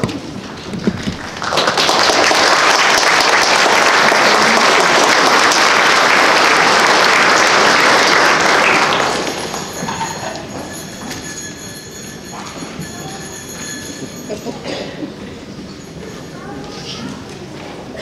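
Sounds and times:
audience applauding: 0.9s - 11.5s.

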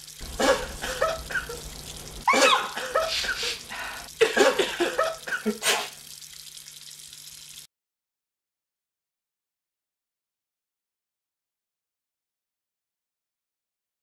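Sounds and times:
person coughing and sneezing: 0.2s - 6.0s.

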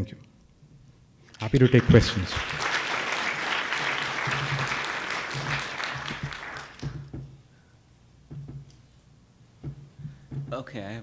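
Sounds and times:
audience applauding: 1.3s - 7.1s.

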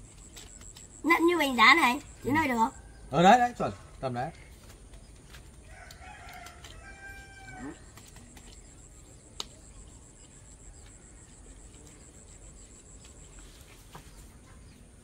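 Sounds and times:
rooster crowing: 5.6s - 7.9s.

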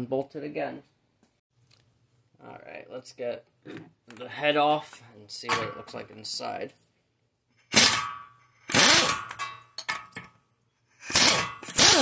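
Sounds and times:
pneumatic impact wrench bursts: 7.7s - 9.4s, 11.0s - 12.0s.

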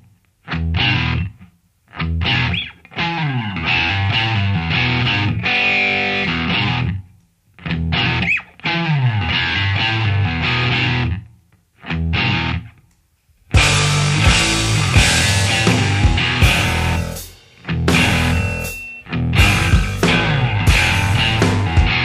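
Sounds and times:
distorted electric guitar: 0.0s - 12.8s, 13.5s - 22.0s
bass riff: 3.3s - 7.0s, 13.6s - 22.0s.

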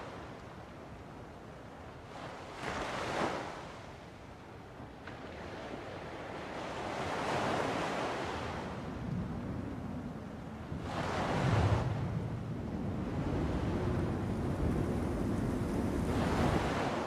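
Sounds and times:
ocean waves washing in: 10.6s - 17.0s.

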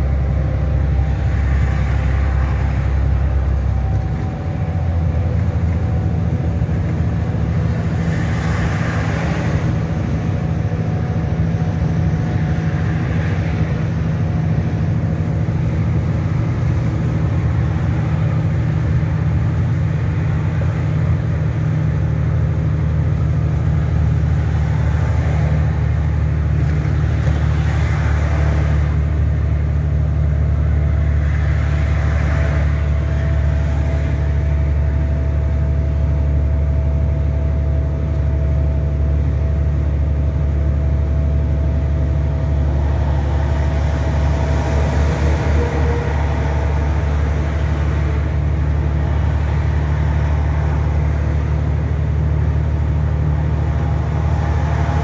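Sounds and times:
lorry engine and road drone: 0.0s - 55.0s.

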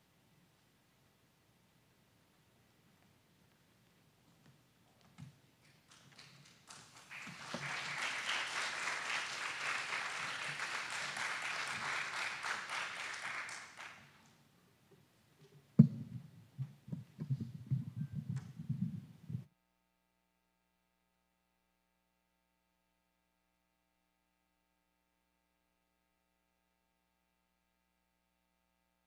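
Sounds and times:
audience applauding: 5.6s - 14.3s
low irregular thuds: 15.8s - 19.5s.

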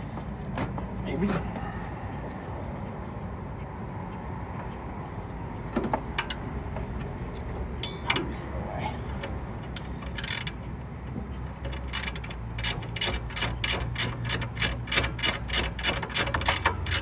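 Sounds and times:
ratchet wrench clicking: 9.6s - 10.6s, 11.5s - 17.0s.

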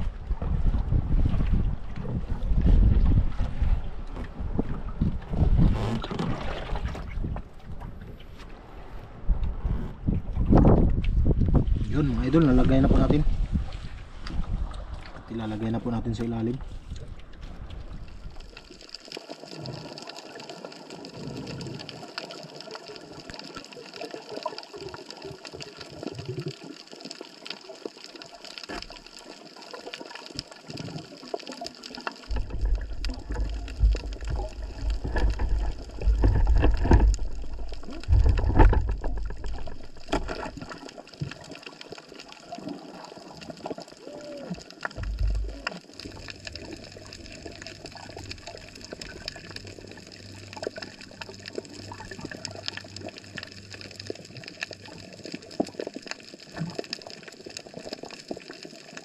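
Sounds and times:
water sloshing and splashing: 0.0s - 59.0s
heavy low rumbling: 32.3s - 40.0s, 45.0s - 54.1s.

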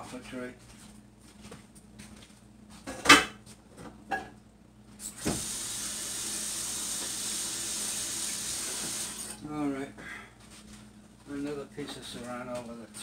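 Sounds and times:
tap water running into sink: 5.2s - 9.3s.

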